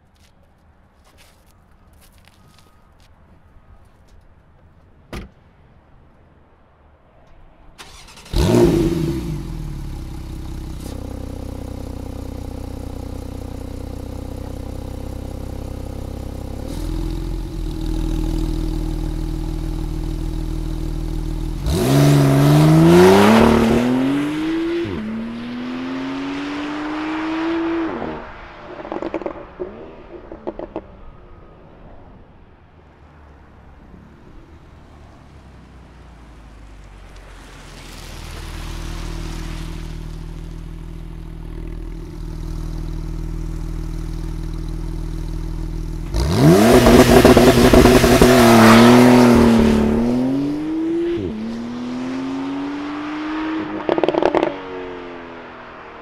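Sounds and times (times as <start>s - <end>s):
car engine starting and idling: 7.3s - 26.4s, 33.0s - 51.5s
engine revving: 7.8s - 14.6s, 16.2s - 30.8s, 36.2s - 54.7s.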